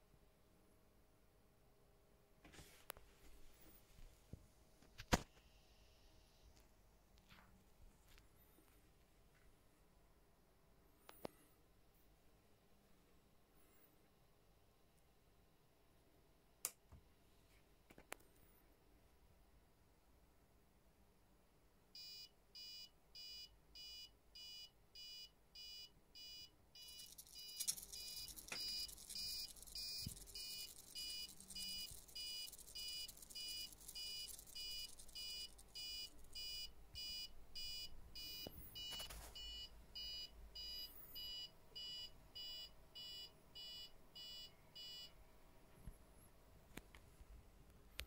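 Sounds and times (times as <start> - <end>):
level-crossing warning beeps: 22.0 - 45.1
servo whirring buzz: 26.8 - 35.8
servo clicks: 26.8 - 36.4.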